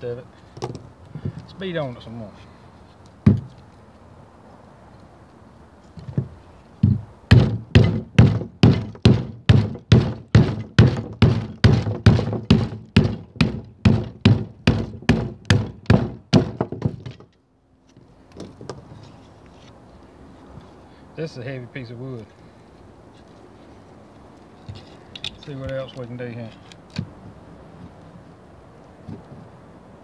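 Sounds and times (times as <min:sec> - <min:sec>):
baton knocking on knife spine: 0:03.3 - 0:03.6, 0:06.1 - 0:17.3.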